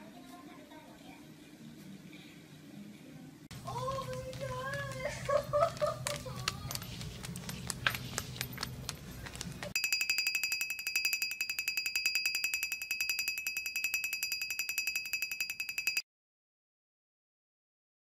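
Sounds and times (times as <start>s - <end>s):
high-pitched trilling ring: 9.8s - 16.0s.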